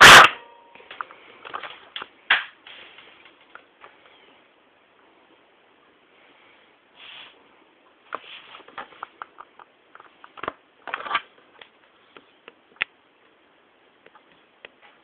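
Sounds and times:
airsoft rifle firing: 0:00.0 - 0:00.5.

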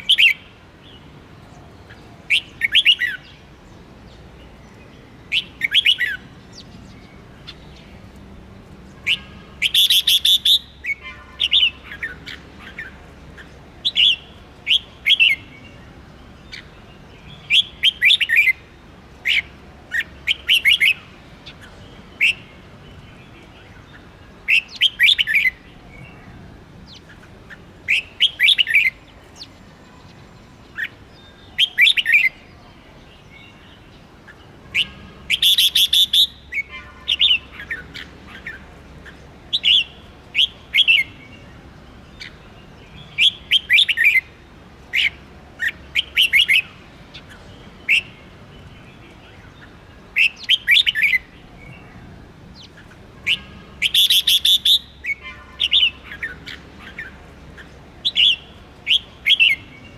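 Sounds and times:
bulbul singing: 0:00.0 - 0:59.9.

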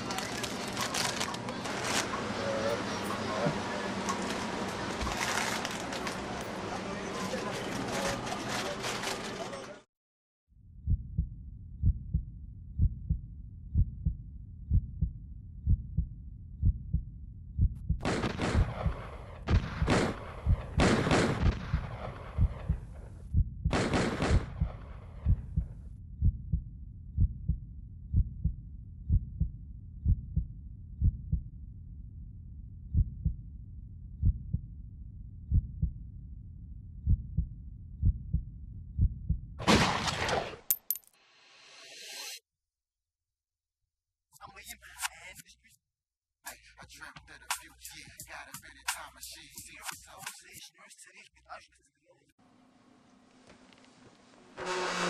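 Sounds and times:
heartbeat thuds: 0:10.8 - 0:31.5, 0:32.9 - 0:33.5, 0:34.2 - 0:34.7, 0:35.5 - 0:36.0, 0:37.0 - 0:39.6
loud echoing bangs: 0:18.0 - 0:22.9.

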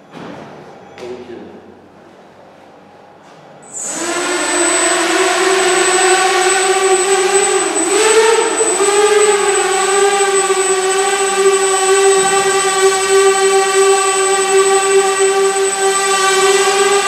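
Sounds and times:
thin high whine: 0:03.6 - 0:17.0
quadcopter motors buzzing hum: 0:03.7 - 0:17.0.

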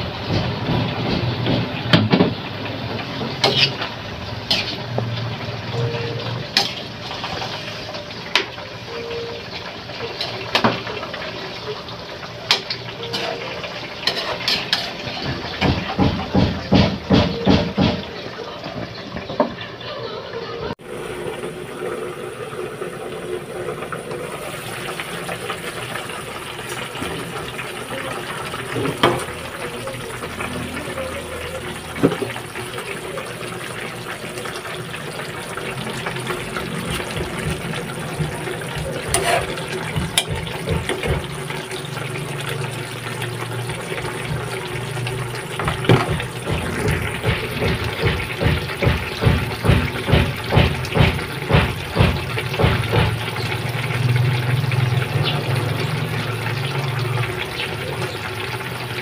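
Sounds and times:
soup bubbling in a pan: 0:20.8 - 0:59.0.

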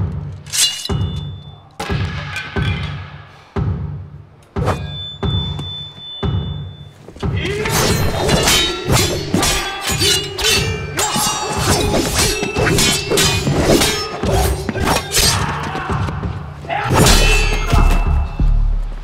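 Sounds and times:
sword blades clashing: 0:00.4 - 0:02.6, 0:07.4 - 0:15.7, 0:16.8 - 0:18.4.

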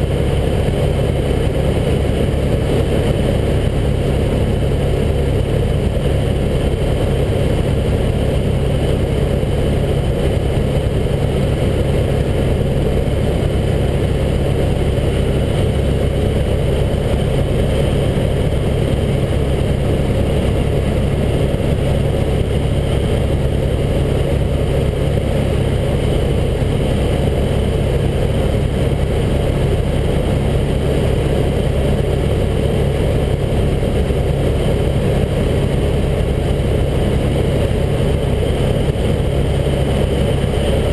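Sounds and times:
helicopter engine and rotor drone: 0:00.0 - 0:40.9.

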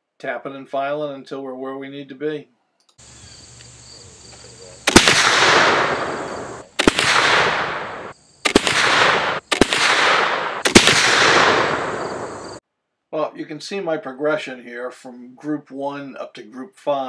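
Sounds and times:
rifle shots with echo: 0:04.4 - 0:12.6.

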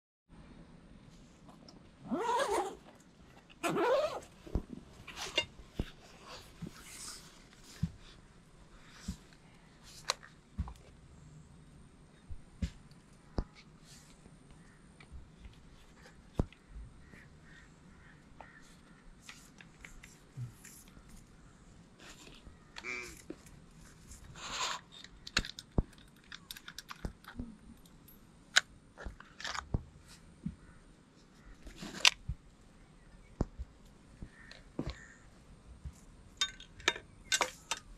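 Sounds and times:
rustle: 0:01.1 - 0:11.5, 0:12.2 - 0:32.4
zipper pulled open: 0:02.0 - 0:07.2
gun parts clicking and knocking: 0:25.0 - 0:29.7, 0:36.4 - 0:37.9.

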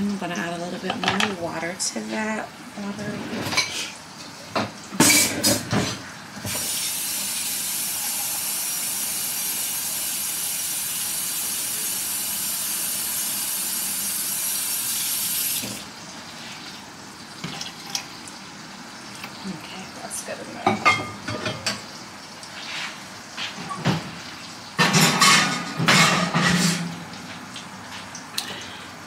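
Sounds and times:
cookware clanking: 0:00.8 - 0:01.4, 0:04.6 - 0:06.0, 0:20.6 - 0:21.8, 0:24.8 - 0:26.9
faucet running into pot: 0:03.5 - 0:15.9, 0:17.4 - 0:18.4.

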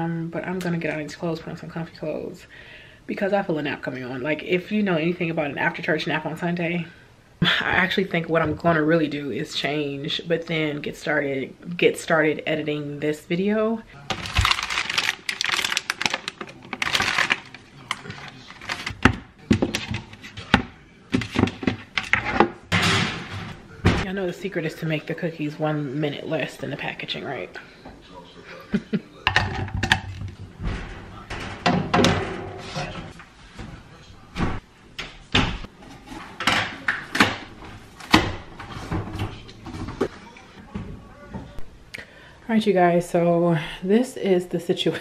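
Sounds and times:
plastic bag crinkling: 0:14.1 - 0:19.0
metal baking sheet clunking: 0:29.3 - 0:33.0.

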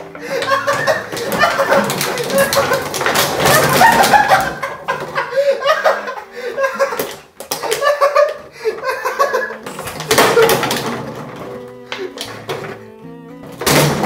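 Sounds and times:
plastic bottles clattering: 0:00.0 - 0:14.0
young man laughing: 0:00.1 - 0:10.7.

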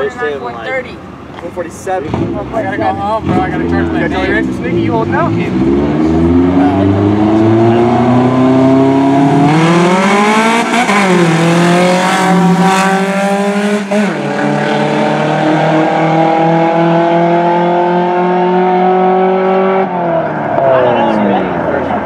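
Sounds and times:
racing car engines accelerating: 0:02.1 - 0:22.0.

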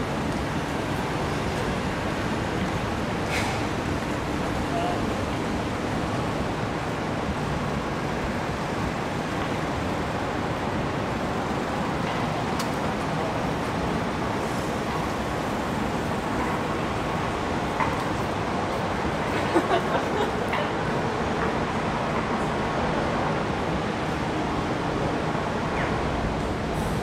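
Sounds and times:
road traffic passing: 0:00.0 - 0:27.0.

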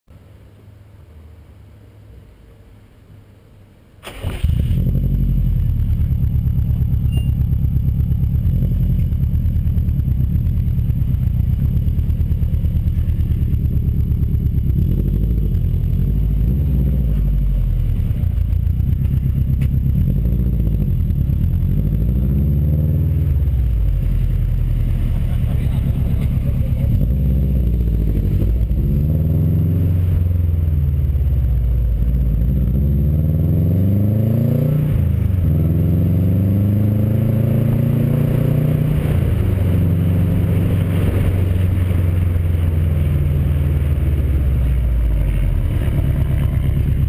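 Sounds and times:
car engine low rumble: 0:00.1 - 0:47.0.

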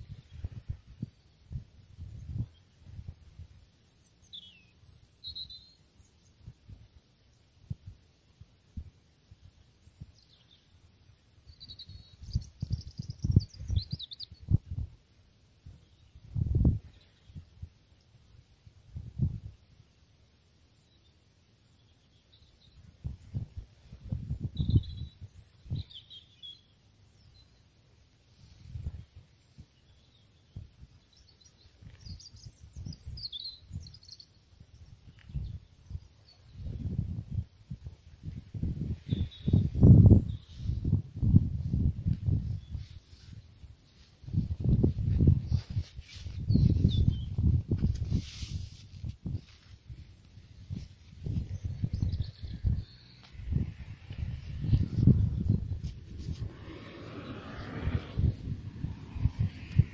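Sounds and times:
wind gusting on microphone: 0:00.0 - 0:03.6, 0:11.7 - 0:15.0, 0:15.7 - 0:17.7, 0:18.8 - 0:19.6, 0:22.8 - 0:26.2, 0:28.4 - 0:59.9
small bird chirping: 0:03.9 - 0:06.6, 0:11.4 - 0:14.8, 0:20.8 - 0:27.7, 0:28.9 - 0:37.2, 0:37.8 - 0:40.9, 0:44.3 - 0:47.7, 0:49.3 - 0:59.9
high bird chirps: 0:04.2 - 0:05.8, 0:11.5 - 0:14.5, 0:51.2 - 0:59.9.

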